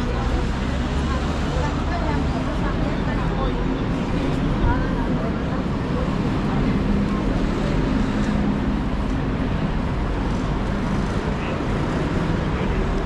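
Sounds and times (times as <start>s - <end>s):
city street traffic: 0.0s - 13.0s
low engine hum: 0.0s - 13.0s.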